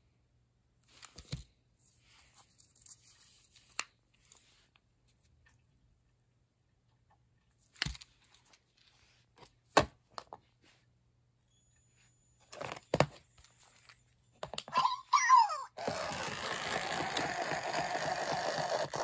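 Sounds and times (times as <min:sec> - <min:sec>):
plastic toy being handled: 0:12.5 - 0:19.0.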